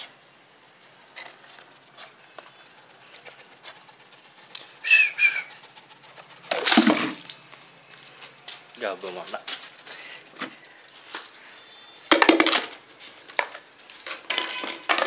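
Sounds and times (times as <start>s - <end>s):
dog lapping water: 5.6s - 7.6s.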